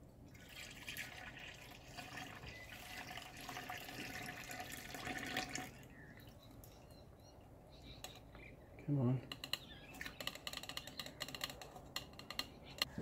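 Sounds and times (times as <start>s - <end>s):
liquid trickling through a mesh filter: 0.0s - 6.9s.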